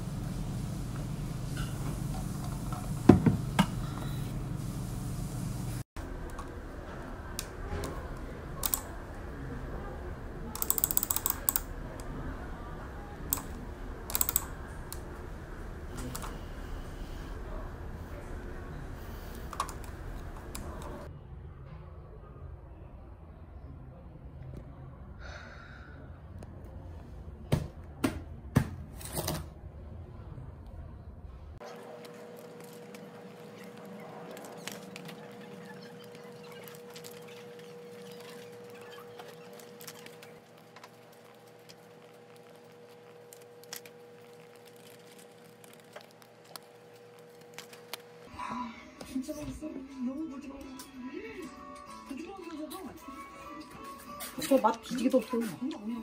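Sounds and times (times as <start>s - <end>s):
typing on computer keyboard: 10.6s - 11.7s, 14.1s - 14.6s
paper rustling: 31.6s - 48.3s.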